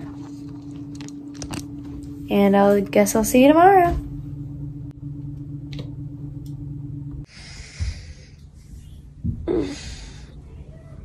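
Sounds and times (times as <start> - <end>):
low steady hum: 0.0 - 11.0
breathy exhales: 7.3 - 8.8, 9.4 - 10.5.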